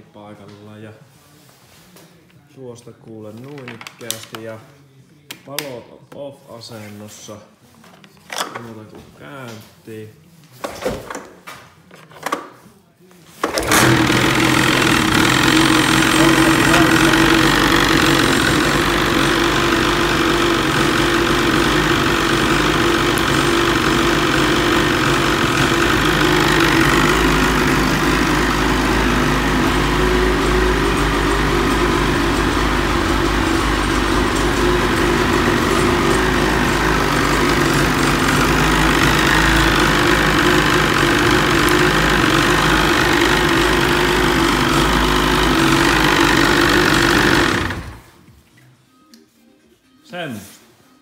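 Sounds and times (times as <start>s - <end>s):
snowmobile engine idling: 13.6s - 48.0s.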